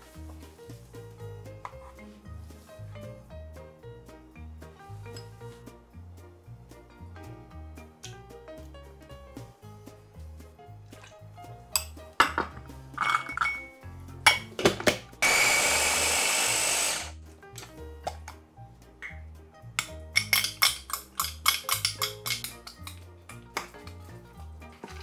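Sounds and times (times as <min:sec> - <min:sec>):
containers and utensils knocking: 0:11.8 - 0:13.7, 0:14.3 - 0:15.0, 0:19.8 - 0:23.0
electric chopper whirring: 0:15.2 - 0:17.2.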